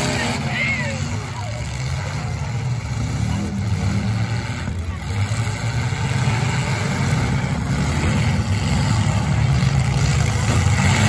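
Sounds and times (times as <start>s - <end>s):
demolition derby car engines: 0.0s - 11.0s.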